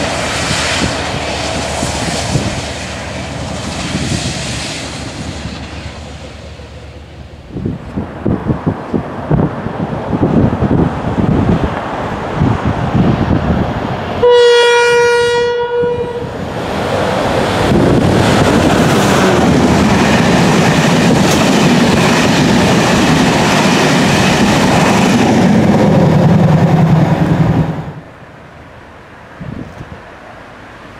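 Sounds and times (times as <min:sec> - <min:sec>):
wind buffeting microphone: 0:00.0 - 0:14.4, 0:15.4 - 0:28.1, 0:29.3 - 0:30.0
train passing on rails: 0:00.0 - 0:30.9
locomotive horn blast: 0:14.2 - 0:16.4.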